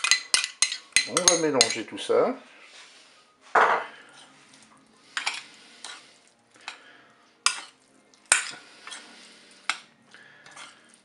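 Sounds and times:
spoon clinking on glass bowl: 0.0s - 1.9s
squelching of salad: 4.0s - 11.0s.

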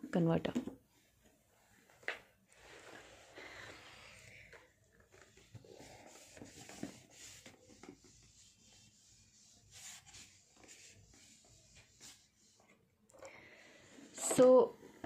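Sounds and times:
eraser rubbing whiteboard: 5.1s - 12.7s.

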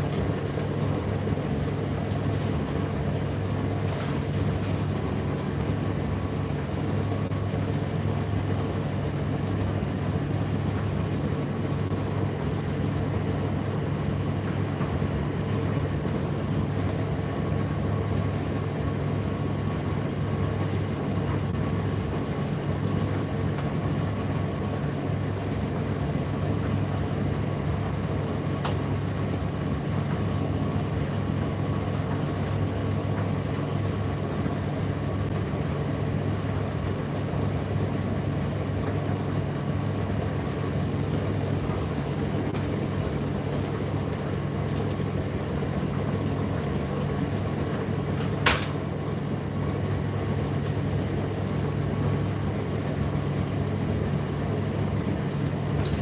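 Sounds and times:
tumble dryer motor hum: 0.0s - 56.0s
dryer click: 28.6s - 28.9s, 47.7s - 48.9s, 55.7s - 56.0s.

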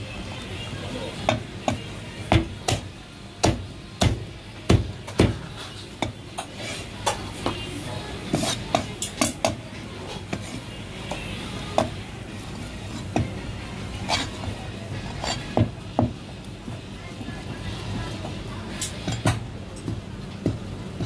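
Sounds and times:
cleaver chopping meat: 1.3s - 6.2s.

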